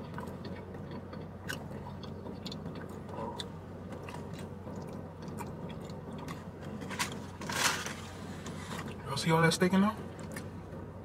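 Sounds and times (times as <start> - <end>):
person chewing food: 0.0 - 6.8
steady low hum: 0.0 - 11.0.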